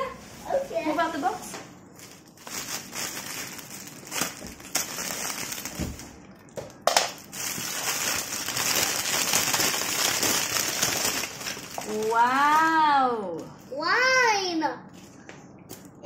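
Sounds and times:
cellophane crinkling: 0:01.9 - 0:12.8.

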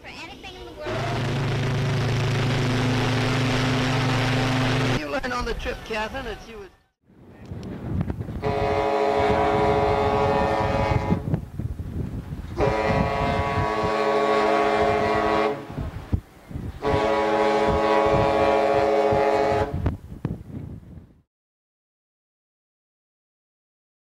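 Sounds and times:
ship horn blasts: 0:00.9 - 0:05.0, 0:08.4 - 0:11.3, 0:12.6 - 0:15.8, 0:16.8 - 0:19.9.

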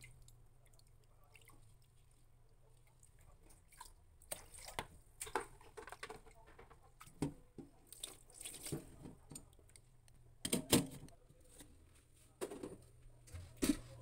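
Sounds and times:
rice sloshing in water: 0:00.0 - 0:06.2, 0:07.8 - 0:09.0.

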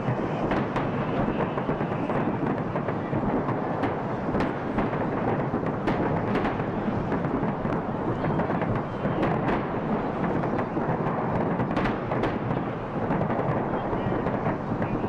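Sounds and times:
fireworks rumble: 0:00.0 - 0:15.0
fireworks sharp cracks: 0:00.0 - 0:15.0.

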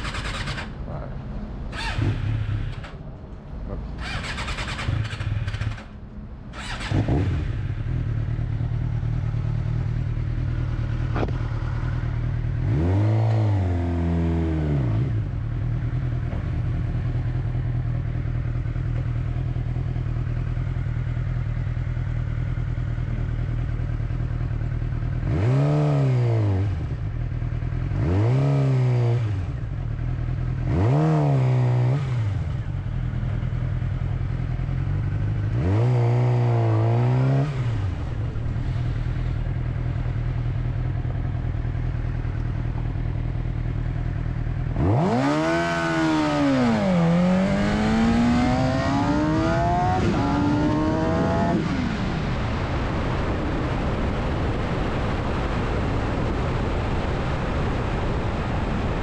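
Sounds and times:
motorcycle engine idling: 0:03.7 - 0:12.6, 0:15.4 - 0:25.2, 0:32.5 - 0:35.5, 0:37.9 - 0:44.8
motorcycle throttle blips: 0:06.6 - 0:13.4, 0:37.5 - 0:51.9.

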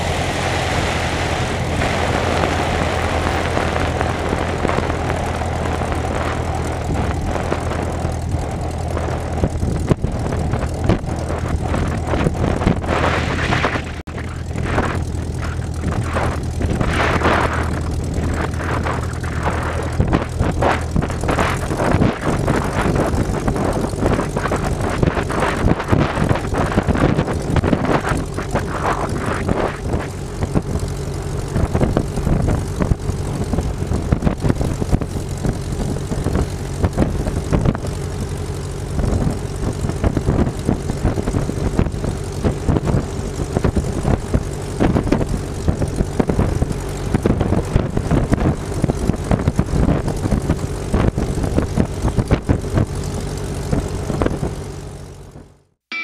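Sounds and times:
uneven rushing noise: 0:00.0 - 0:09.3, 0:10.4 - 0:23.0
propeller plane engine: 0:00.0 - 0:56.0.

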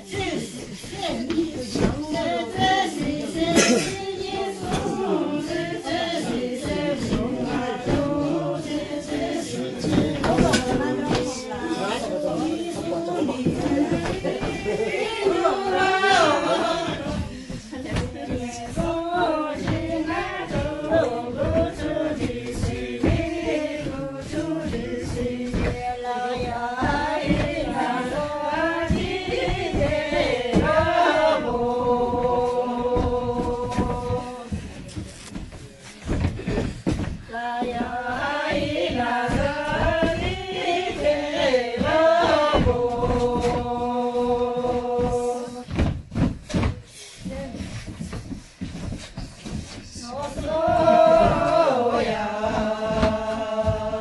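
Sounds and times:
women singing a chant-like song: 0:00.0 - 0:54.0
footsteps thudding on floor: 0:00.8 - 0:11.7, 0:12.8 - 0:54.0.

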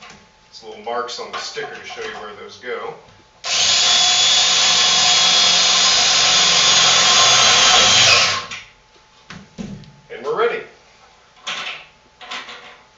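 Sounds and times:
cordless drill driving screw into metal: 0:03.5 - 0:08.6.

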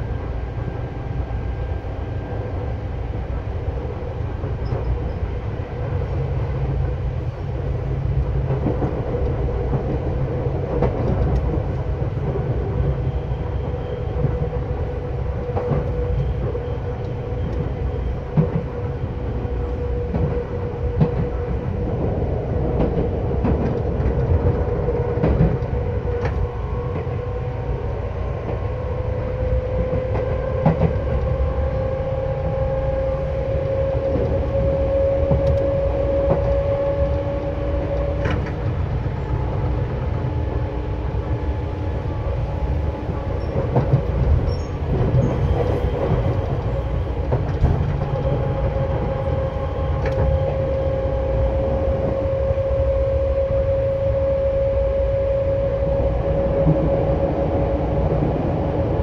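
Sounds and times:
train wheels rumbling on rail: 0:00.0 - 0:59.0
rail-joint clicks: 0:04.4 - 0:05.4, 0:08.0 - 0:19.0, 0:20.0 - 0:27.2, 0:29.4 - 0:31.4, 0:32.4 - 0:40.2, 0:42.3 - 0:52.3.

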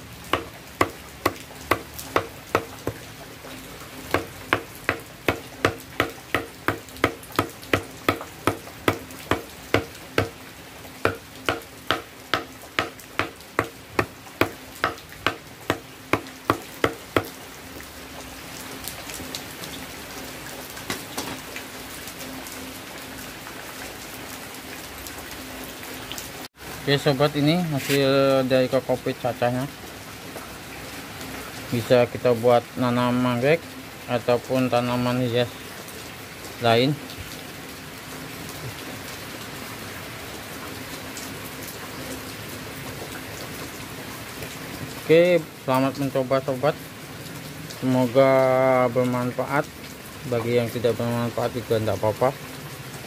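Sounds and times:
machete chopping on wooden block: 0:00.3 - 0:03.0, 0:04.1 - 0:10.4, 0:11.1 - 0:17.3.

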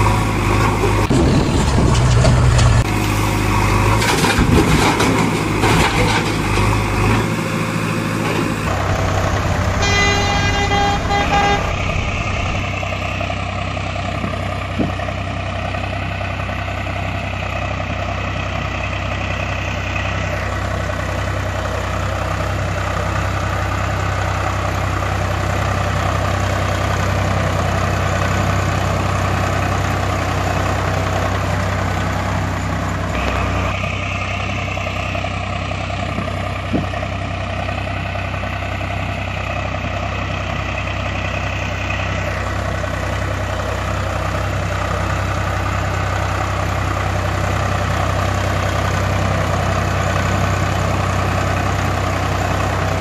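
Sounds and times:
truck engine idling: 0:00.0 - 0:53.0.

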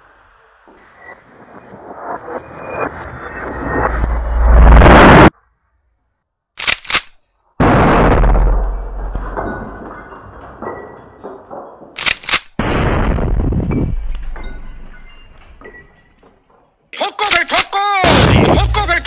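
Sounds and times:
small clicks: 0:06.6 - 0:07.2, 0:12.0 - 0:12.6
sharp cracks: 0:06.6 - 0:08.8, 0:12.0 - 0:13.2, 0:17.2 - 0:18.8
cannon blast: 0:07.6 - 0:09.4, 0:12.6 - 0:14.2, 0:18.0 - 0:18.8.

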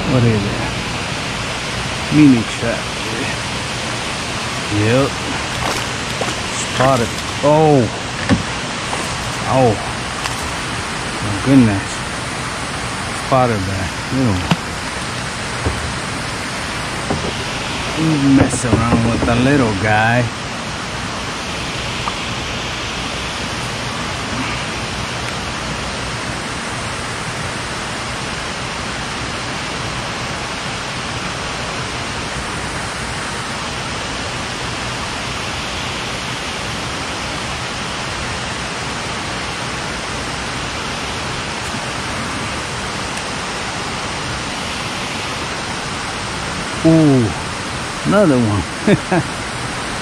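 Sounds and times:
water rushing at a dam: 0:00.0 - 0:50.0.

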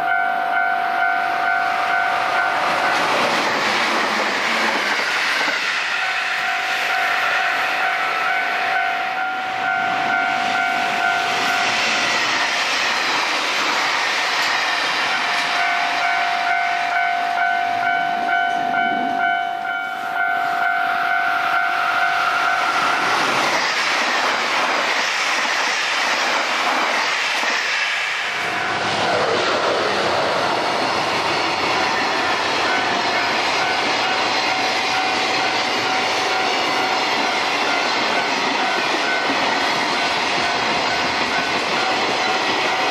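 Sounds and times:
crossing warning bell ringing: 0:00.0 - 0:12.6, 0:15.0 - 0:23.2, 0:28.3 - 0:29.4, 0:31.6 - 0:42.9
train passing: 0:00.0 - 0:42.9.

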